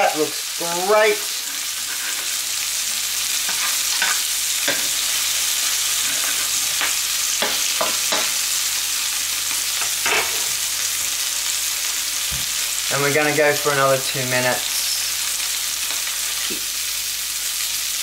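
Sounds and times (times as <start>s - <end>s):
burger patty sizzling in pan: 0.0s - 18.0s.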